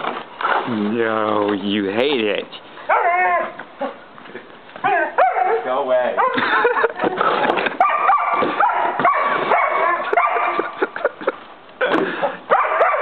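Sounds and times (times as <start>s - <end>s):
puppy barking and yipping: 2.9s - 4.0s, 4.8s - 6.4s, 7.8s - 10.8s, 12.5s - 13.0s.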